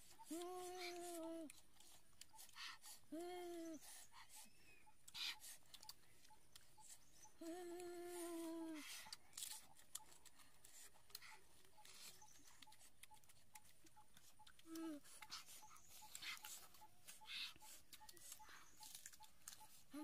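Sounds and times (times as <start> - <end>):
chewing clicks and smacks: 0.1 - 3.2, 3.8 - 8.0, 8.8 - 20.0
person humming mmm: 0.2 - 1.6, 3.1 - 3.8, 7.4 - 9.2, 14.5 - 15.2.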